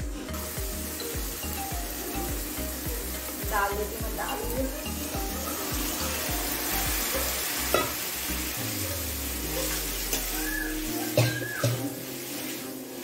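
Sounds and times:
food sizzling in hot oil: 0.0 - 13.0
steel ladle knocking on pan: 7.7 - 8.0.

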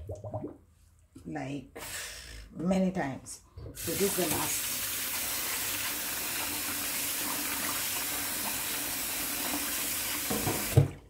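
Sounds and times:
tap water running into sink: 3.8 - 11.0.

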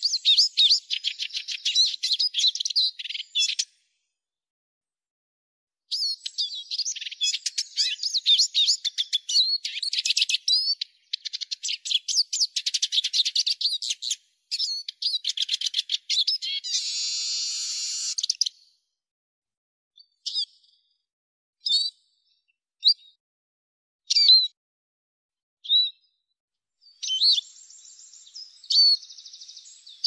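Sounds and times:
bird singing twittering chirps: 0.0 - 3.7, 5.9 - 18.6, 26.8 - 30.0.

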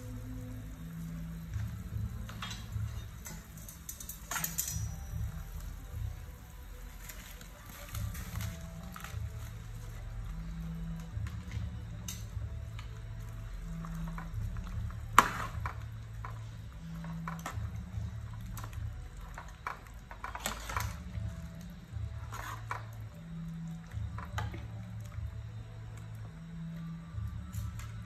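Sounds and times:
soft background music: 0.0 - 28.0
metal ladle clinking in pot: 2.4 - 5.0.

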